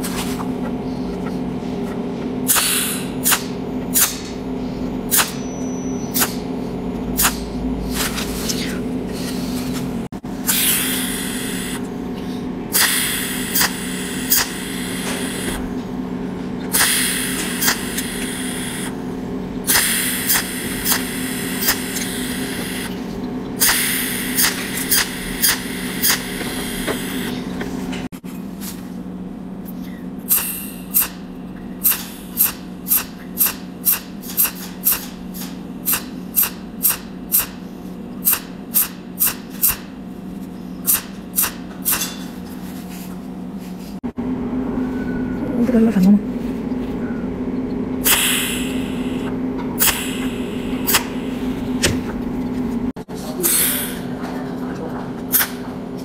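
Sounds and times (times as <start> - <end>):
steady low hum: 0.0 - 56.0
welding arc snaps: 2.5 - 4.3, 5.1 - 5.4, 12.8 - 15.6, 16.8 - 18.9, 19.7 - 22.9, 23.6 - 27.2, 31.8 - 37.6, 38.2 - 39.9, 40.9 - 42.2, 48.0 - 51.2, 55.3 - 55.6
welding arc hissing: 10.4 - 11.8, 12.8 - 15.7, 16.7 - 19.0, 19.7 - 23.0, 23.6 - 27.4, 30.3 - 31.2, 31.8 - 37.6, 38.2 - 39.9, 48.0 - 51.9.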